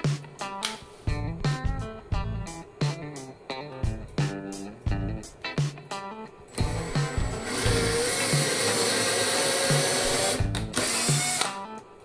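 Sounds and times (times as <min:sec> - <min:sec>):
guitar background music: 0:00.0 - 0:12.0
cordless drill whining: 0:06.5 - 0:11.6.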